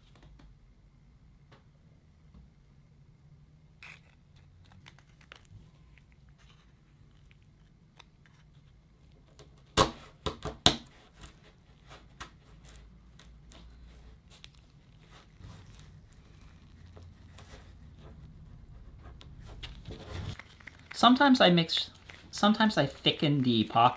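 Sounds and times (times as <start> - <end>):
stir stick scraping plastic cup: 13.8 - 19.4.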